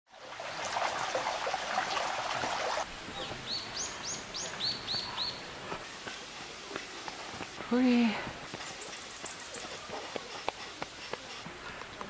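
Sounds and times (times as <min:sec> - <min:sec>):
water trickling into stone basin: 0:00.1 - 0:02.9.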